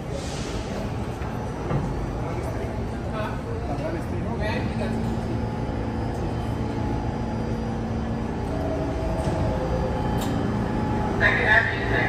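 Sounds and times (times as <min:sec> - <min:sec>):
subway train humming: 0:00.0 - 0:12.0.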